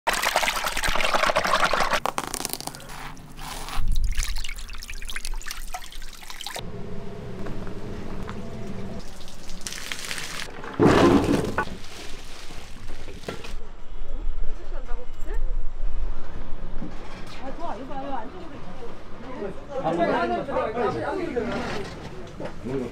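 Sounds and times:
water splashing and dripping: 0.1s - 2.0s, 3.8s - 6.6s, 9.0s - 10.6s.

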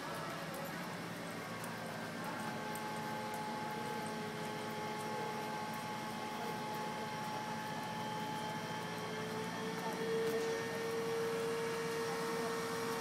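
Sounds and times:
crane mechanical hum: 0.0s - 13.0s
thin mechanical whine: 2.2s - 13.0s.

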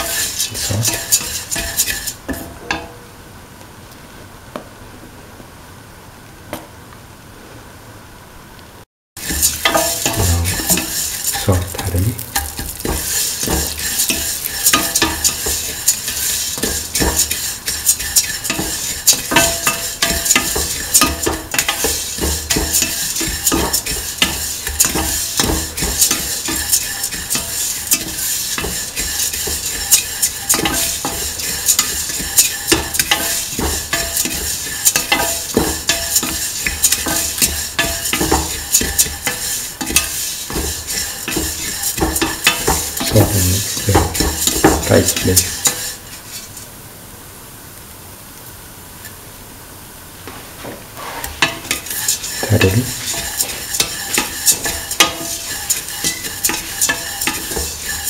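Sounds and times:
food sizzling: 0.0s - 2.5s, 9.2s - 46.9s, 50.2s - 58.0s
spatula scraping a metal pan: 0.0s - 2.8s, 9.2s - 46.7s, 51.0s - 58.0s.

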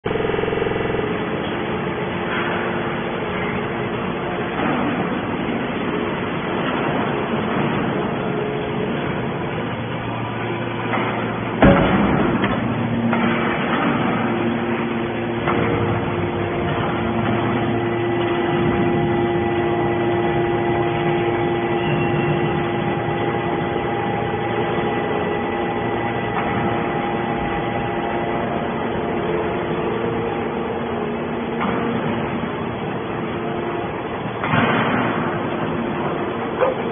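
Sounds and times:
hydraulic pump hum and whine: 0.0s - 36.9s
loud metal bang: 10.0s - 32.8s, 34.3s - 36.2s.

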